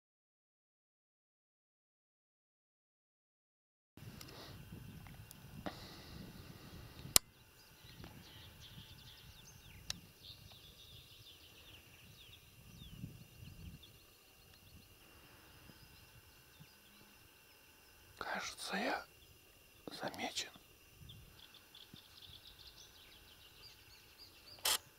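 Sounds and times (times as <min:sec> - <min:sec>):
faint high bird chirps: 0:06.6 - 0:24.9
sharp click: 0:24.6 - 0:24.9.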